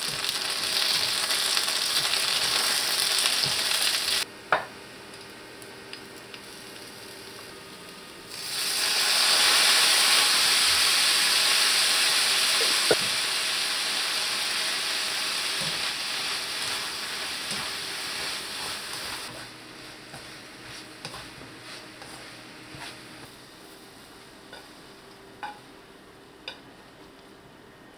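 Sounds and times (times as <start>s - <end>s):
loud hiss in hot pan: 0.0s - 4.2s, 8.3s - 23.2s
food sizzling in frying pan: 0.0s - 5.3s, 5.9s - 25.7s.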